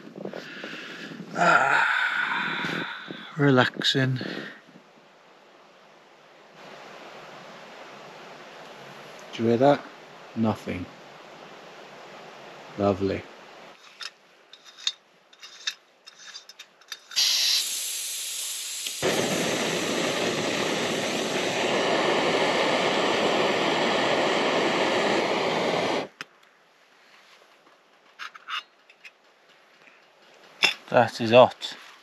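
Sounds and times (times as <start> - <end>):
gas hissing: 1.2 - 3.4, 16.3 - 26.2
stove burner rushing: 14.0 - 26.2.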